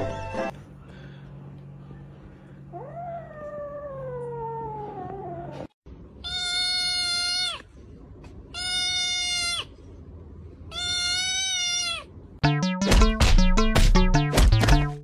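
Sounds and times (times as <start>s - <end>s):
kitten meowing: 6.2s - 7.6s, 8.6s - 9.7s, 10.7s - 12.1s.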